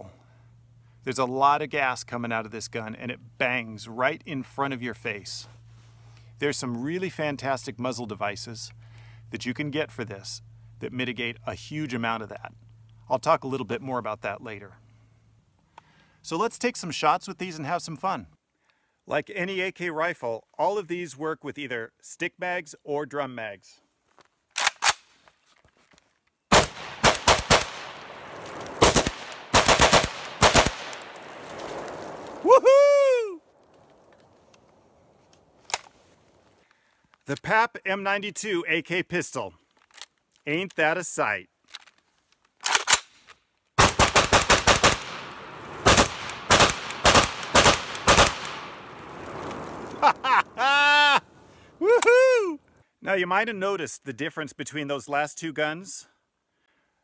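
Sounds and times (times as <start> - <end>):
gun readying clicks: 24.5 - 25.2
rapid gunshots with echo: 26.5 - 28.1, 28.8 - 31.0, 43.8 - 48.8.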